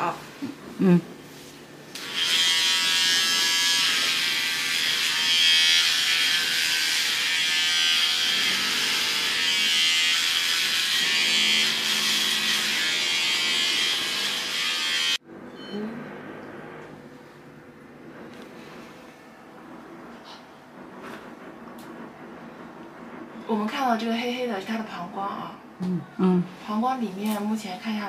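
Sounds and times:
electric hair clipper buzzing: 0:01.9 - 0:15.2.

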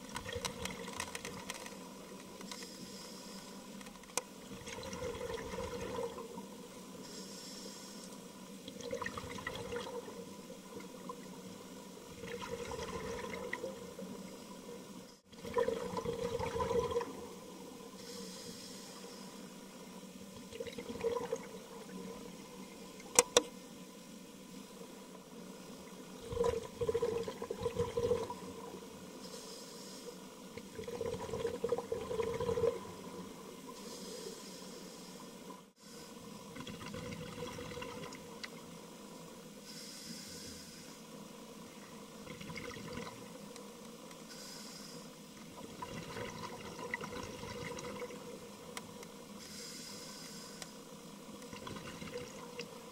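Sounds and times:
regulator inhalation hiss: 0:02.4 - 0:03.8, 0:06.9 - 0:08.3, 0:17.9 - 0:19.7, 0:29.2 - 0:30.3, 0:33.7 - 0:36.4, 0:39.6 - 0:41.1, 0:44.2 - 0:45.3, 0:49.4 - 0:51.0
bubbling exhalations: 0:15.4 - 0:17.2, 0:26.2 - 0:28.4, 0:30.6 - 0:32.9.

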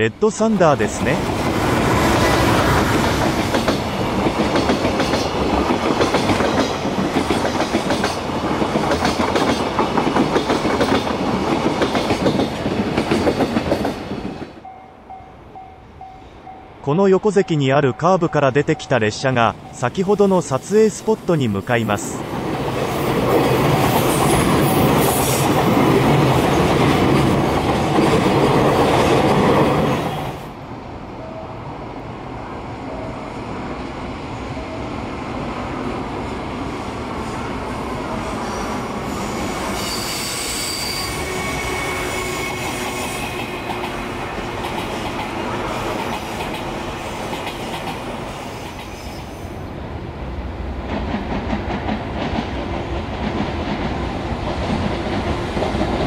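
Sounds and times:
train wheels squealing: 0:38.3 - 0:43.7, 0:48.3 - 0:49.6.

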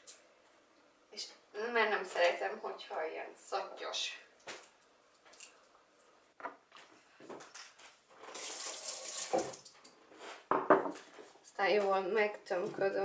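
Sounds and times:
knocks on kitchen counter: 0:10.5 - 0:11.0.

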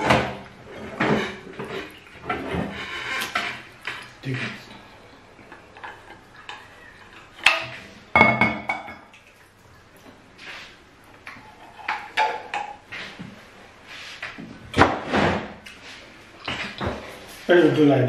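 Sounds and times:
dishes clattering: 0:00.0 - 0:09.1, 0:11.3 - 0:13.4.

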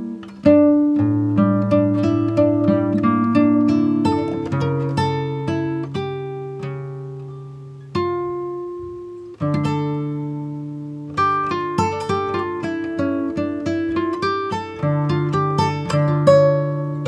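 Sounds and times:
plucked string instrument: 0:00.0 - 0:17.0.

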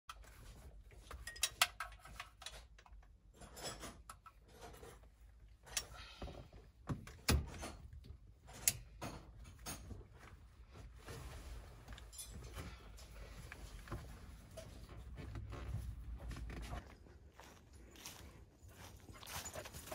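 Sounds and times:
metal tools clinking: 0:01.0 - 0:06.0, 0:07.5 - 0:10.1, 0:12.0 - 0:13.3.

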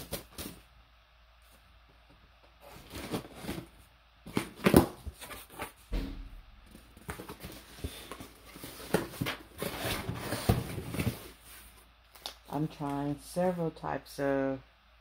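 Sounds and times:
cardboard box rustling and scraping: 0:07.1 - 0:11.7.

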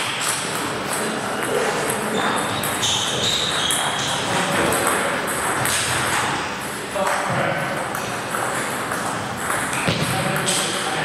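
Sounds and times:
sports hall background noise: 0:00.0 - 0:11.0
short high squeaks: 0:02.1 - 0:04.3.

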